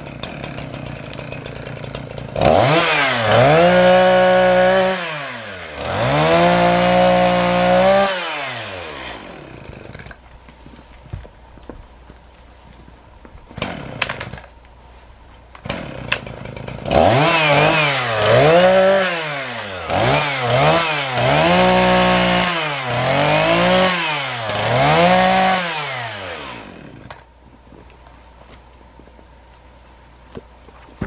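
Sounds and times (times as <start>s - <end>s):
chainsaw cutting wood: 0.0s - 11.2s, 13.4s - 14.8s, 15.4s - 27.4s.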